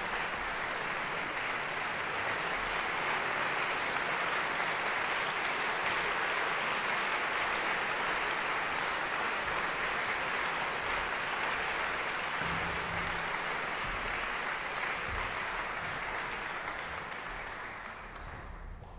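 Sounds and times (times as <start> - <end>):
audience applauding: 0.0 - 18.9.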